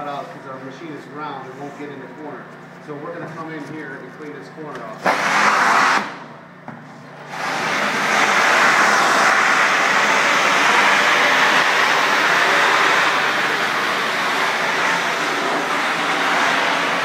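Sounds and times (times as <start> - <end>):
pressure washer spray hissing: 7.3 - 17.0.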